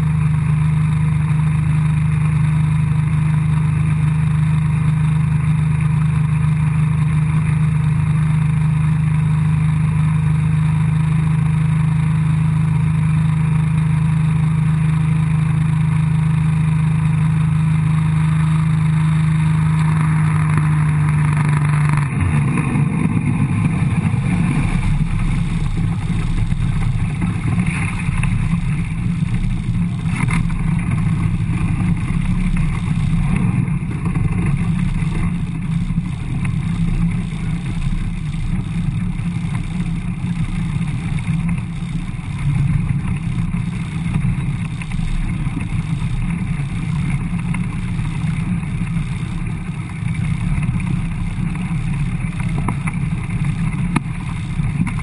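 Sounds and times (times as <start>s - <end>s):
motorboat engine running: 0.0s - 55.0s
wind on microphone: 19.8s - 55.0s.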